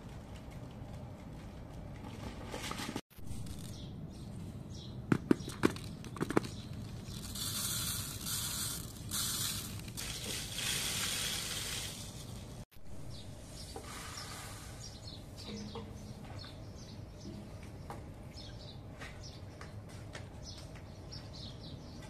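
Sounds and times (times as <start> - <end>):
rice pouring through a funnel: 7.1 - 12.6.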